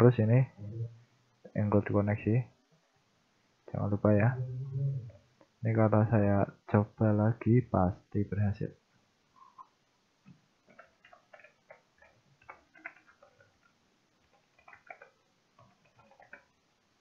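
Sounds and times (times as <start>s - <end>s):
computer keyboard typing: 10.7s - 16.6s.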